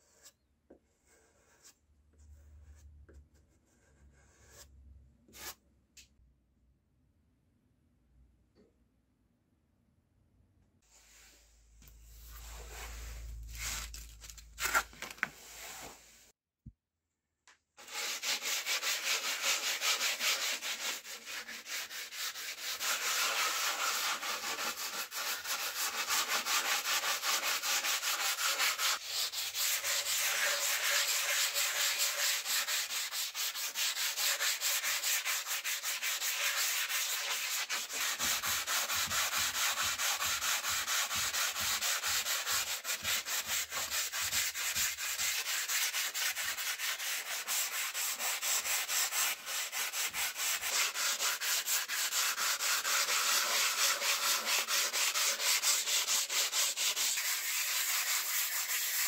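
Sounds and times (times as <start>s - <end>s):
sanding sponge scratching wood: 17.8s - 59.0s.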